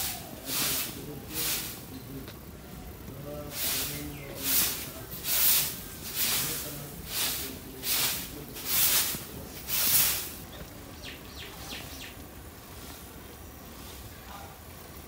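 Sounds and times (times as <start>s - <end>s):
broom swishing on dirt: 0.0s - 1.9s, 3.5s - 10.4s, 12.7s - 14.1s.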